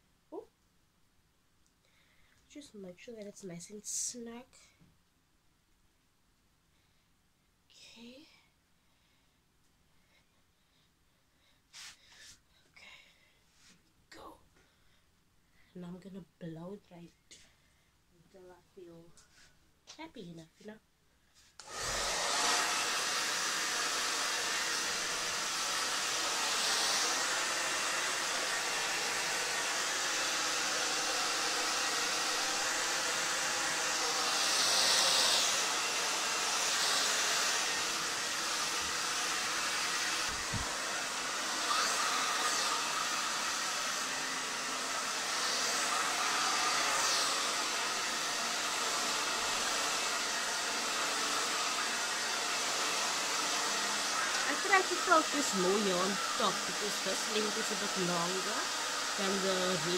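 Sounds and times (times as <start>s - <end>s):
hair dryer blowing: 21.6s - 59.9s.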